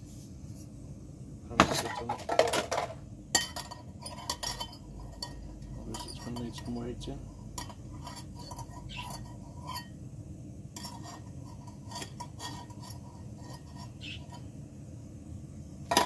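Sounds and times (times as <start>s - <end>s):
metal pot and handles clinking: 1.5s - 10.0s, 10.8s - 14.5s.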